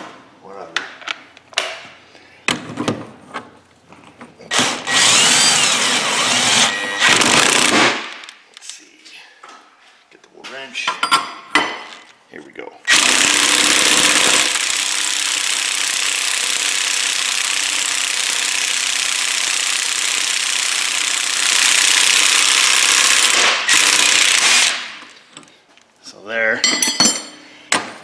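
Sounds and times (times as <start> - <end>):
impact wrench hammering: 12.9 - 25.0.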